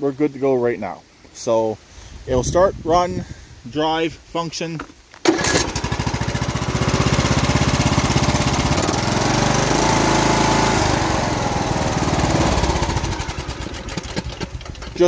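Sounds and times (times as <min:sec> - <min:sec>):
riding mower engine running: 0:05.2 - 0:15.0.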